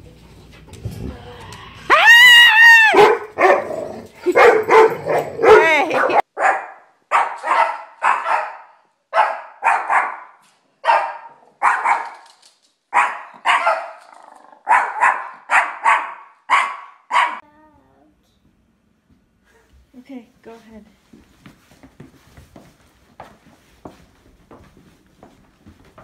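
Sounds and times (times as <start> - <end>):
small dog barking: 2.8 - 12.2, 12.9 - 14.0, 14.6 - 17.4.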